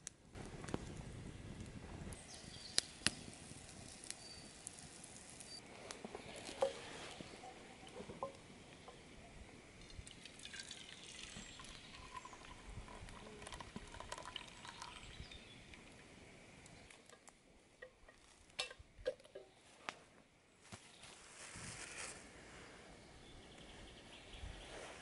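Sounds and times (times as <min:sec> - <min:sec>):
liquid pouring into a metal tin: 0:09.8 - 0:15.2.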